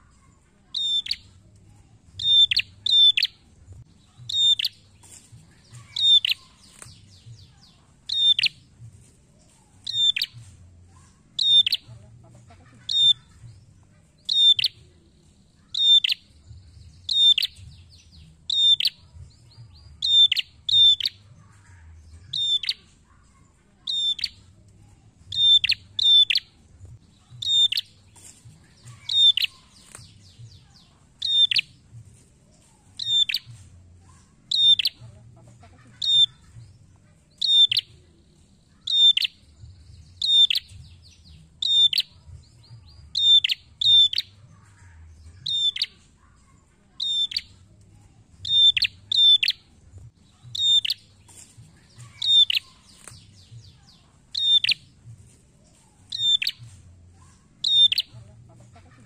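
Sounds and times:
bird sharp chip calls: 5.6 - 7.2, 50.6 - 53.4, 57.6 - 58.2.

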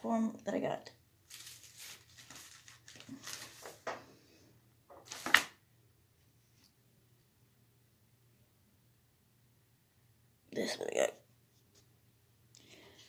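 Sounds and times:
paper rustling: 1.3 - 4.1, 4.9 - 5.6.

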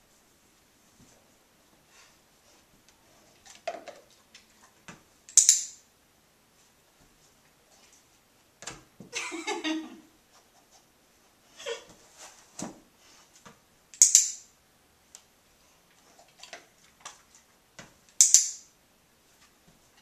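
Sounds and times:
soft scuffing and rustling: 0.0 - 3.4, 6.5 - 9.1, 10.2 - 13.6, 19.2 - 20.0.

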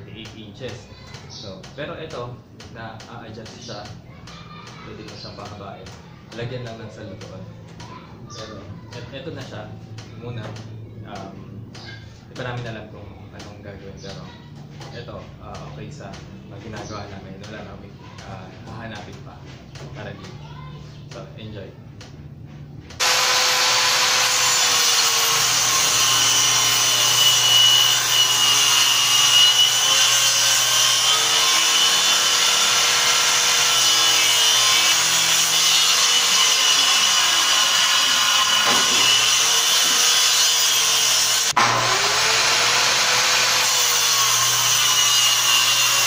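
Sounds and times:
circular saw cutting plywood: 23.0 - 46.0.

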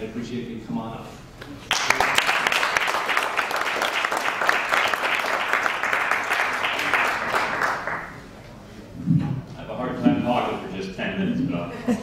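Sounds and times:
audience applauding: 1.7 - 8.2.

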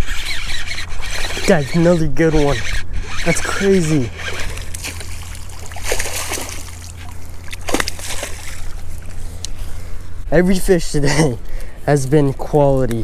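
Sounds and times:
fish thrashing and splashing: 4.2 - 9.4.

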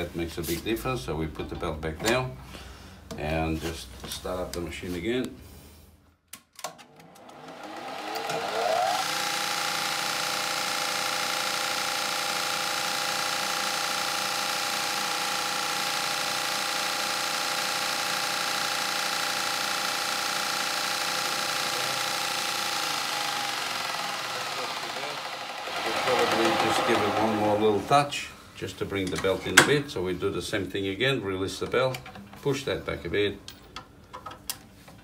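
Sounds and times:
belt sander motor whining: 6.9 - 28.4.

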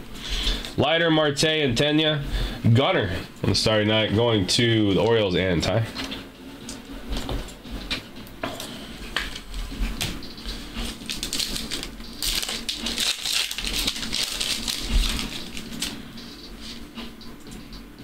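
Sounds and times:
foil wrapper rustling: 10.5 - 16.8.

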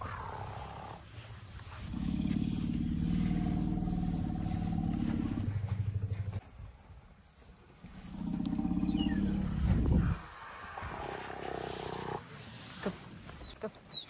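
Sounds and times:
elephant rumbling: 0.0 - 6.4, 7.8 - 12.5.

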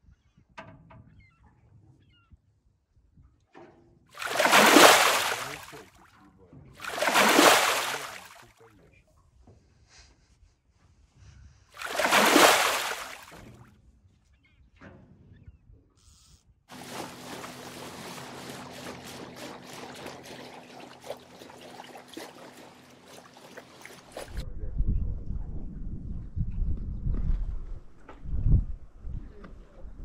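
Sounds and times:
water splashing against boat hull: 4.2 - 6.0, 6.8 - 8.4, 11.8 - 13.6, 16.7 - 24.4.

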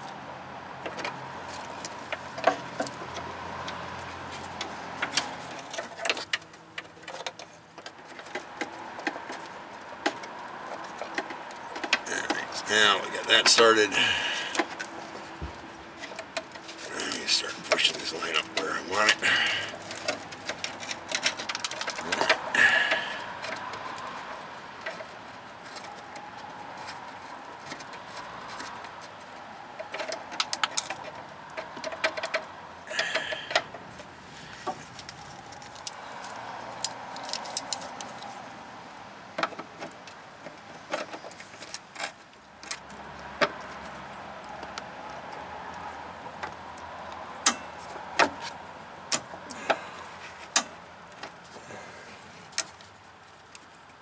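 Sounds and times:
metallic clicks and knocks: 17.6 - 22.5.

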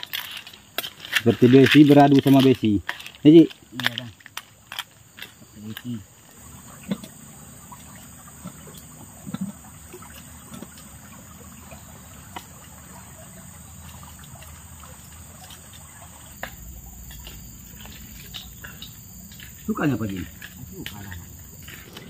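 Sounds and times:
faint clicks and crackles: 0.0 - 6.0
insects droning: 0.0 - 22.0.

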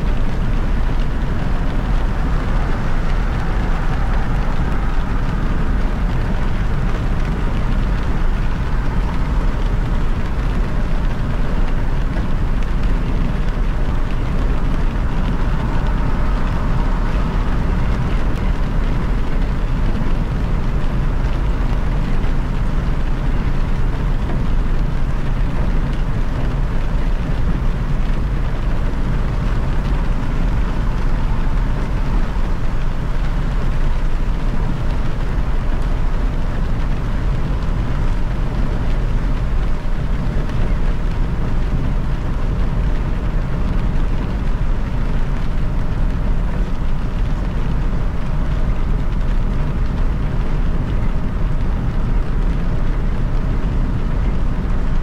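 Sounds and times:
tyre noise on wet road: 0.0 - 55.0.

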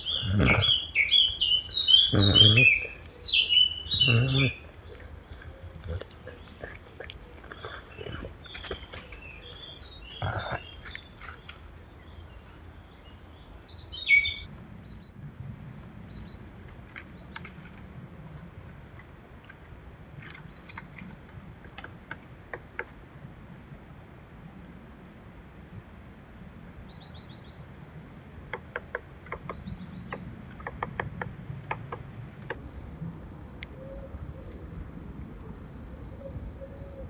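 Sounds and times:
woodland birds chirping: 0.0 - 15.2, 20.2 - 22.9, 26.3 - 32.6.

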